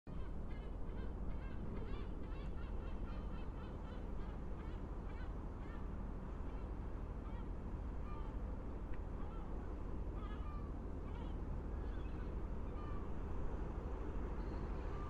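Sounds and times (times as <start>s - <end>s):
seabirds calling: 0.1s - 6.8s, 9.2s - 13.4s.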